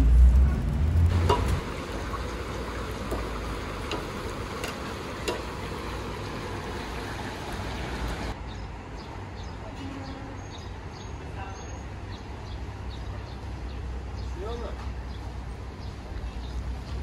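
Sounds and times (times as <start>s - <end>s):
quiet open-air background: 0.0s - 17.0s
metal skimmer clinking on pot: 1.1s - 2.2s, 3.1s - 5.7s.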